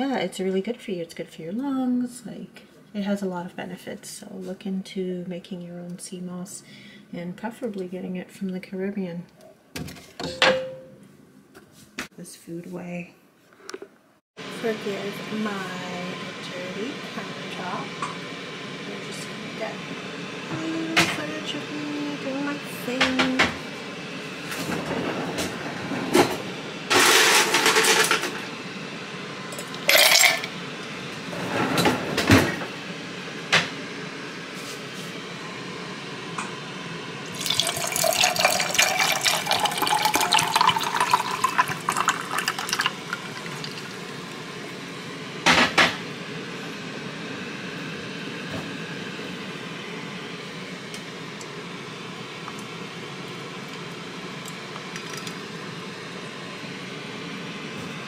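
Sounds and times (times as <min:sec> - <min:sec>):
tea pouring over ice: 0:29.6 - 0:30.5, 0:37.3 - 0:44.2
ice cubes clattering into glass: 0:29.9 - 0:30.5.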